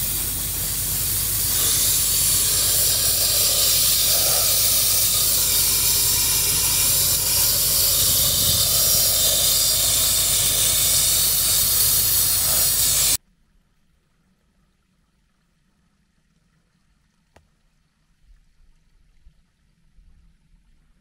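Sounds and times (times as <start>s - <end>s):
sandblaster hissing: 0.0s - 13.2s.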